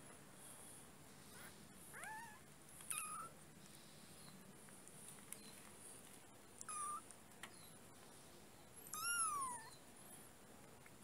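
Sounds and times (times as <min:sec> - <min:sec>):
kitten mewing: 0:08.9 - 0:09.7.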